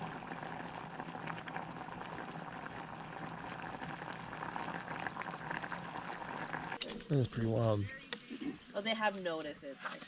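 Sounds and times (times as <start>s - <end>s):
bubbles popping: 0.0s - 6.8s
thick mixture boiling in saucepan: 0.0s - 10.0s.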